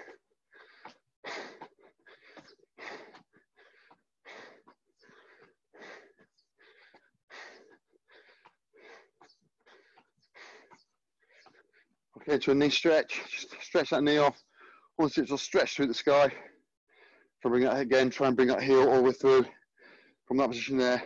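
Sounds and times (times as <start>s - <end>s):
person breathing hard: 0.0s - 12.0s, 16.3s - 17.4s, 19.5s - 20.3s.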